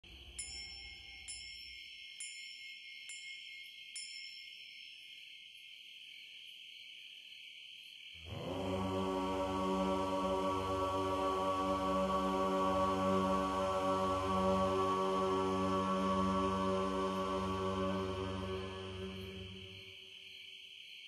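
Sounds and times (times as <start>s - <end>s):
deep chanting voices: 8.2s - 20.0s
high drone: 8.3s - 19.8s.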